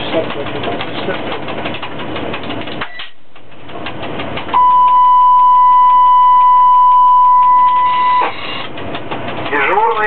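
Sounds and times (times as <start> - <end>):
low cab rumble: 0.0 - 10.0
high-pitched beep tone: 4.6 - 8.3.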